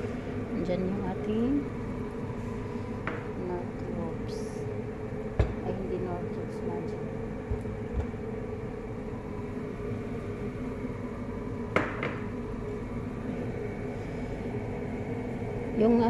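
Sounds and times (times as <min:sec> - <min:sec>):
low mechanical hum: 0:00.0 - 0:16.0.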